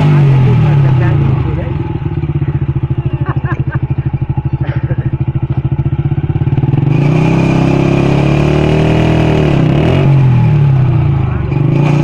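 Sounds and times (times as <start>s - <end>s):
small motorcycle engine revving: 0.0s - 12.0s.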